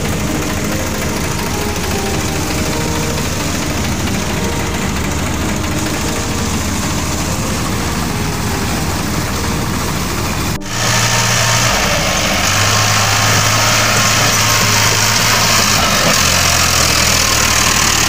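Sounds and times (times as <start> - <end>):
diesel tractor engine running: 0.0 - 18.0.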